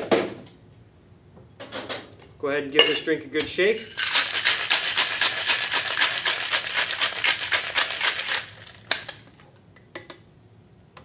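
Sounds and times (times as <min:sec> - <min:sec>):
ice rattling in cocktail shaker: 0:03.9 - 0:09.4.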